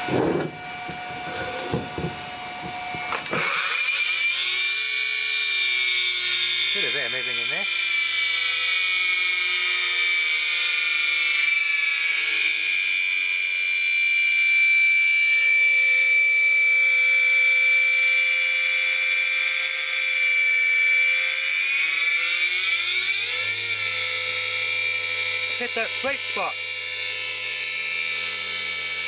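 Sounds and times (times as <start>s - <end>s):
high-pitched motor whine: 0.0s - 29.0s.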